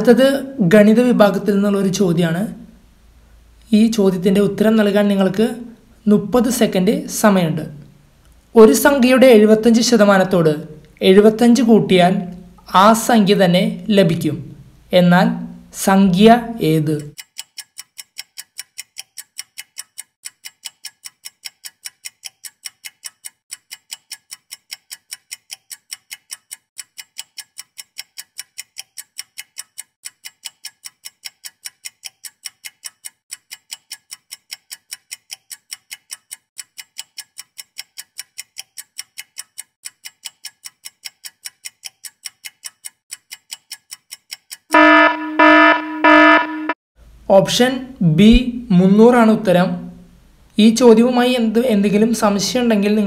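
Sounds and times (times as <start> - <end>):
clock ticking: 16.9 - 46.8
buzzer blasts: 44.7 - 46.8.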